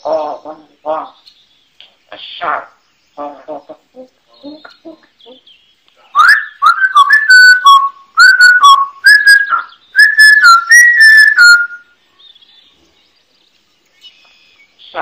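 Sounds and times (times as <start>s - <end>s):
parrot whistling a tune: 6.2s - 11.9s.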